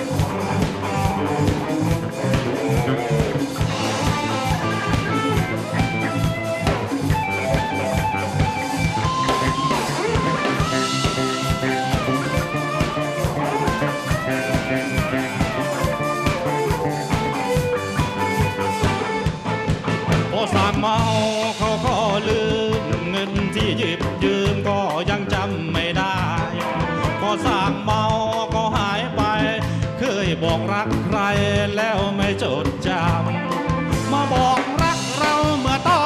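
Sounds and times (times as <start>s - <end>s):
drum kit beat: 0.0s - 36.0s
electric guitars: 0.0s - 36.0s
hand drums: 0.0s - 36.0s
keyboard: 0.0s - 36.0s.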